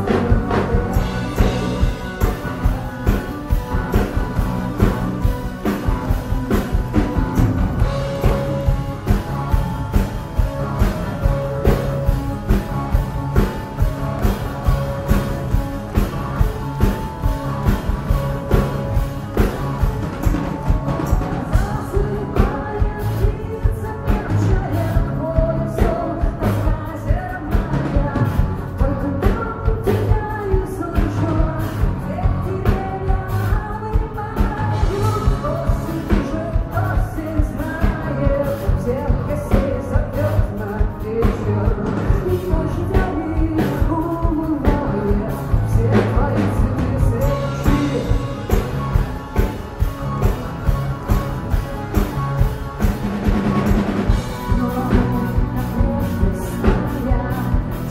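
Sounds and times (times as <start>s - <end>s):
woman singing: 0.0s - 7.2s, 21.0s - 49.6s, 53.3s - 57.9s
live rock band playing: 0.0s - 57.9s
drum beat: 0.2s - 21.8s.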